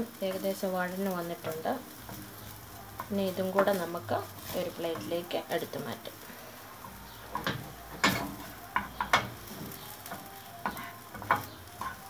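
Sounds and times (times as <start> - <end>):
onions sizzling in a frying pan: 0.0 - 12.0
wooden spatula scraping: 1.2 - 12.0
spatula knocking on pan and plate: 10.7 - 12.0.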